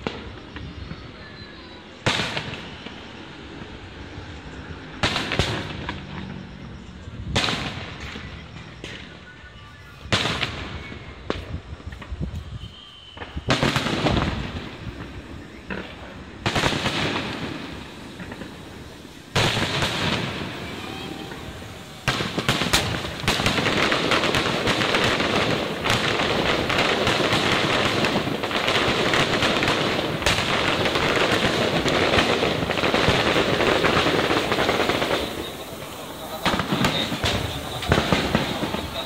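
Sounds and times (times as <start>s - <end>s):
fireworks booming: 0.0s - 39.0s
fireworks crackling and popping: 0.0s - 39.0s.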